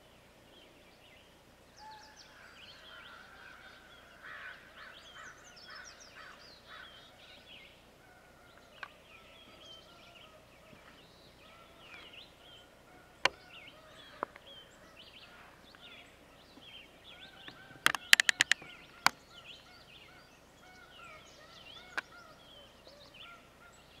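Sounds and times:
small birds chirping: 0.0s - 24.0s
sharp clicks: 17.8s - 19.2s.

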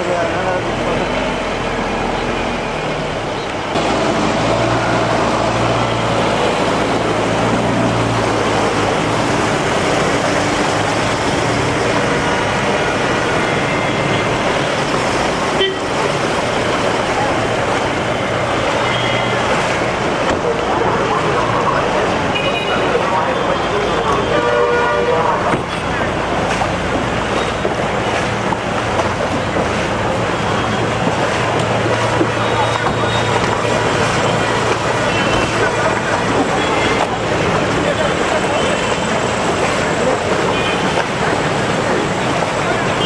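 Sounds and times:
swish of churned floodwater: 0.0s - 43.0s
vehicle engines running: 0.0s - 43.0s
car horn toots: 15.5s - 15.9s, 24.0s - 25.9s.

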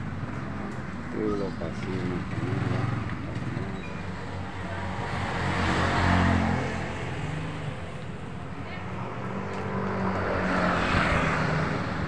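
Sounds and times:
vehicle passing: 8.8s - 12.0s.

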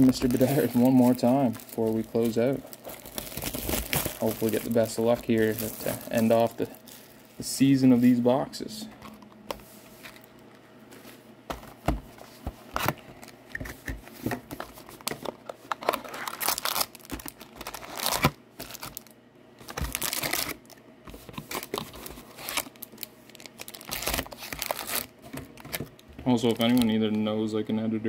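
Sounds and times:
shrink wrap crinkling and tearing: 0.0s - 8.1s, 15.0s - 27.2s
foil packs rustling: 0.0s - 8.4s, 14.5s - 27.2s.

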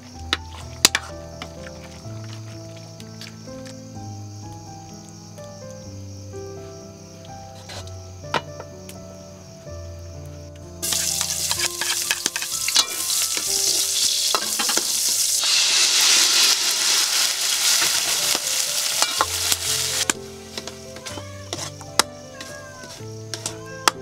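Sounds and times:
food sizzling in a hot wok: 10.8s - 24.0s
ladle scraping a pan: 10.8s - 24.0s.

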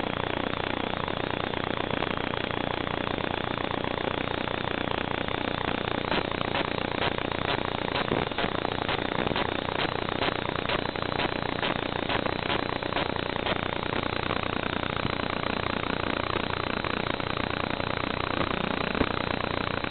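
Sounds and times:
static hiss: 0.0s - 19.9s
faint regular ticks: 6.1s - 13.6s.

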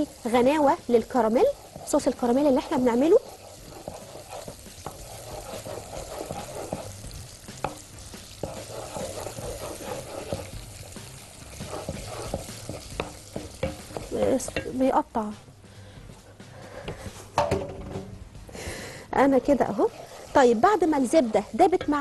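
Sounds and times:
wooden spoon scraping a pot: 0.0s - 14.6s, 19.2s - 22.0s
butter sizzling: 0.0s - 15.0s, 19.2s - 22.0s
spoon knocking on pot: 11.7s - 14.8s, 21.6s - 22.0s.

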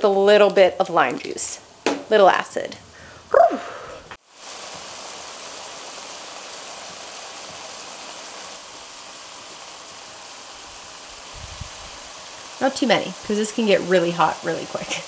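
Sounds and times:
stir-fry sizzling in a skillet: 4.2s - 15.0s.

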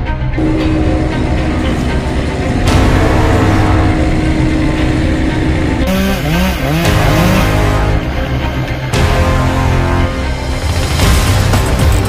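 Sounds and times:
loud background music: 0.0s - 12.0s.

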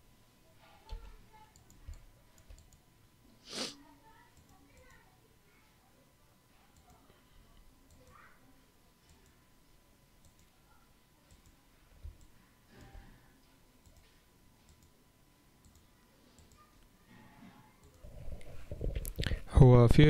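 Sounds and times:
computer mouse clicks: 0.9s - 2.8s, 4.4s - 5.0s, 6.8s - 7.0s, 7.9s - 8.2s, 9.0s - 9.4s, 10.2s - 10.5s, 11.3s - 13.0s, 13.8s - 15.0s, 15.6s - 16.7s, 17.8s - 18.0s
faint thin whine: 3.2s - 19.4s.

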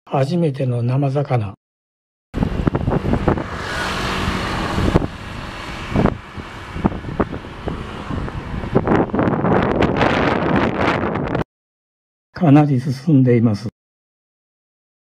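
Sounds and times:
wind buffeting microphone: 2.4s - 11.4s.

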